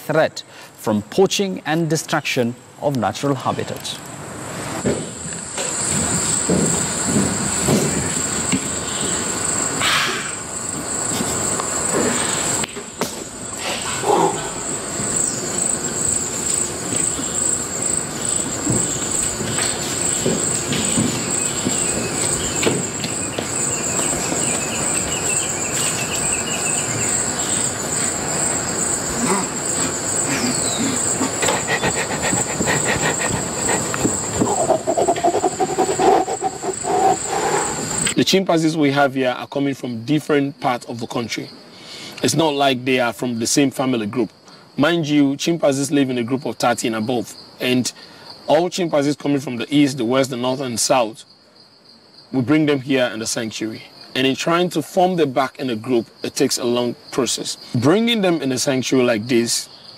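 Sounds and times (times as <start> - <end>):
insects chorus: 0.1 - 59.9
short calls: 13.5 - 38.2.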